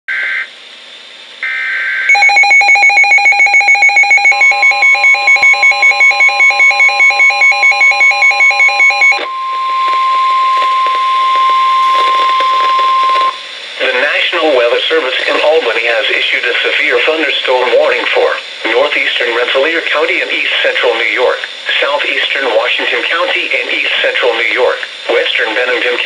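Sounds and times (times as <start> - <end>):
two-tone data bursts: 1.4 - 13.5
steady warning alarm tone: 1.4 - 14.3
rapid alert beeps: 2.1 - 13.4.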